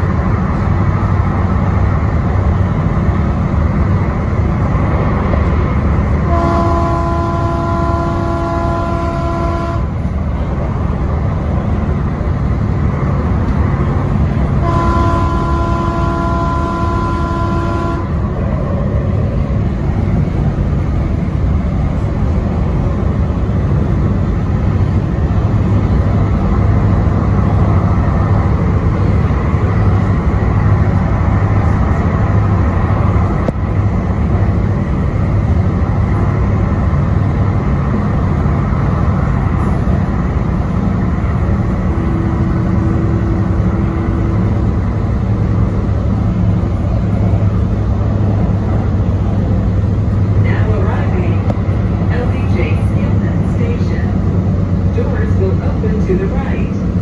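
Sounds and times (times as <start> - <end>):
train rumbling: 0.0 - 57.0
train horn chord blasts: 6.2 - 10.1, 14.6 - 18.2.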